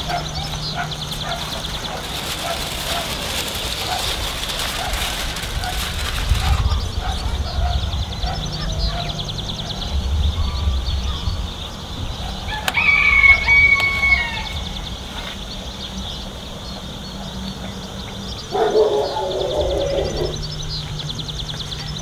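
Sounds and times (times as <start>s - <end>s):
rooster crowing: 12.4s - 14.9s, 18.5s - 20.5s.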